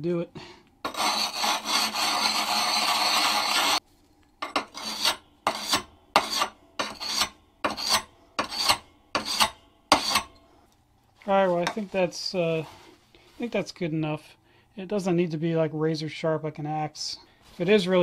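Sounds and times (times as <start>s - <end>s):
sharpening stone scraping steel: 0.9s - 3.8s, 4.4s - 10.4s.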